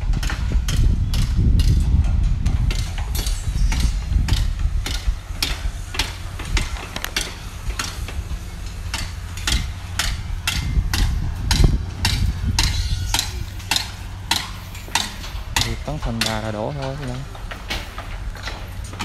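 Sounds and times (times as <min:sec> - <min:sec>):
low rumble: 0:00.0 - 0:19.0
sharp knocks: 0:08.9 - 0:19.0.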